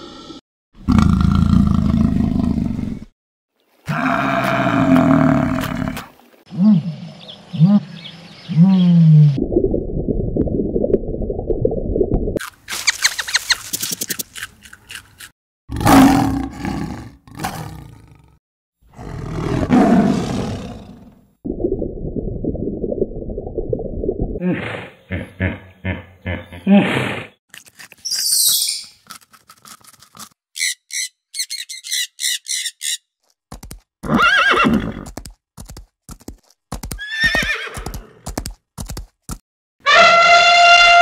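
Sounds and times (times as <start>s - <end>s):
lion roaring and growling: 3.9s - 6.1s, 15.7s - 21.2s
high quick chirps: 12.7s - 14.2s, 28.0s - 29.0s.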